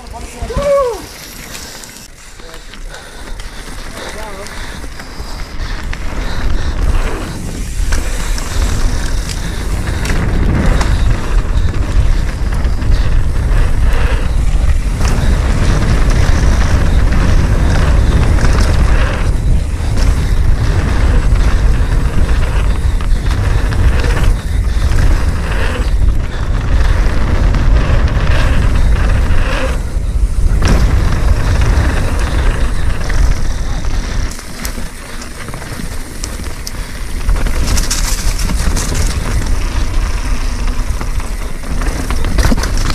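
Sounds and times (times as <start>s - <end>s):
bike tyres rumbling over dirt: 0.0s - 42.9s
bike knocks and rattles: 5.6s - 42.9s.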